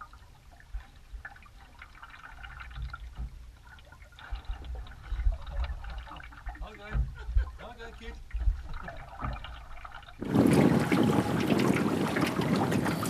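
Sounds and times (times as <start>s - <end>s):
water dripping and trickling: 0.0s - 13.0s
low thuds: 4.2s - 13.0s.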